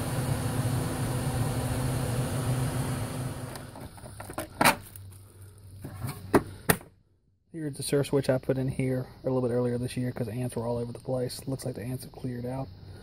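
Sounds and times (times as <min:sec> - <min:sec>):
blower humming and winding down: 0:00.0 - 0:03.9.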